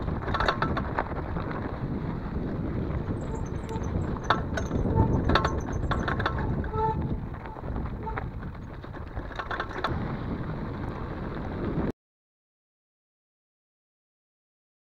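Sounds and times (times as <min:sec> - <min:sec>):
bike rattling and clicking: 0:00.0 - 0:11.9
tyres crunching over stones: 0:00.0 - 0:11.9
wind rumble on microphone: 0:00.0 - 0:11.9.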